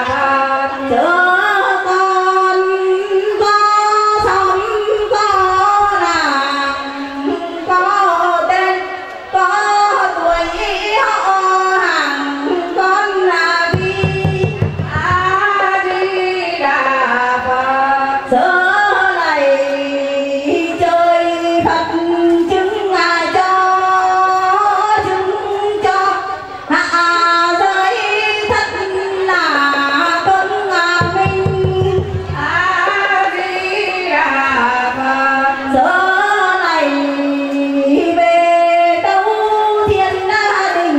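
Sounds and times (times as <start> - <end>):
woman singing a devotional chant: 0.0 - 40.9
barrel drum roll: 13.7 - 15.6.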